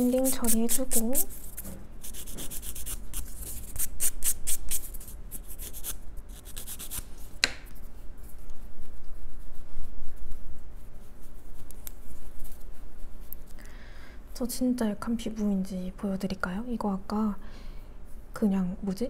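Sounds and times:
nail buffer rubbing fingernail: 0.0 - 7.0
sharp tap: 7.4 - 7.7.

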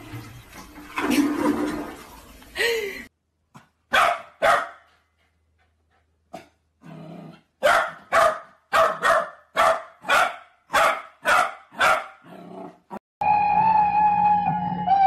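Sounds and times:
puppy barking: 3.9 - 4.9, 7.6 - 12.3
puppy growling: 12.2 - 13.0.

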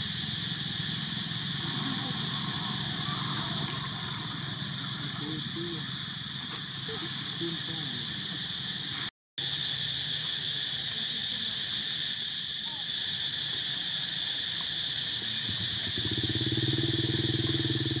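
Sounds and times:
low pulsing engine hum: 0.0 - 8.8
insects droning: 0.0 - 18.0.

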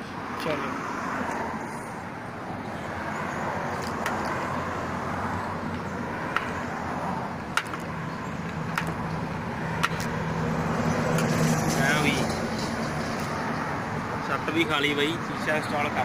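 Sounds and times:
passing road traffic hum: 0.0 - 16.0
sharp clicks and taps: 7.5 - 9.0, 9.8 - 10.2.

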